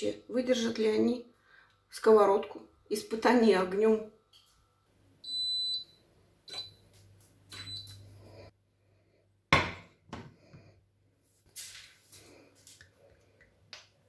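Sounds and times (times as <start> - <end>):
hob touch control beeps: 5.3 - 5.9, 7.5 - 8.0.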